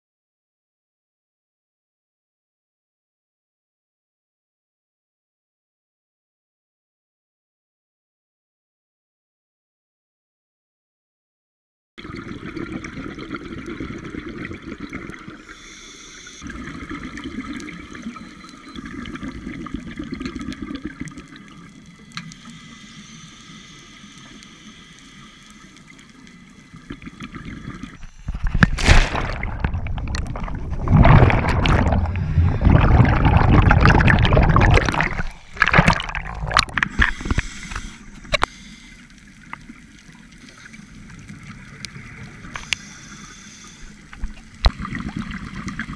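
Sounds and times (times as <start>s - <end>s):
regulator bubbles gurgling underwater: 12.0s - 22.5s, 25.8s - 43.2s, 43.8s - 45.9s
faint steady tone: 15.3s - 19.6s, 21.5s - 28.4s
bubble bursts: 28.5s - 36.8s.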